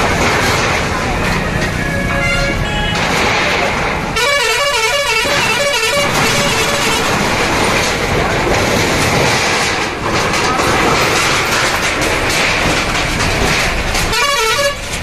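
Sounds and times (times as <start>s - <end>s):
backhoe working: 0.0s - 15.0s
musical vehicle horn: 1.8s - 3.0s, 4.2s - 7.0s, 14.1s - 14.9s
metal sheeting clatter: 2.9s - 15.0s.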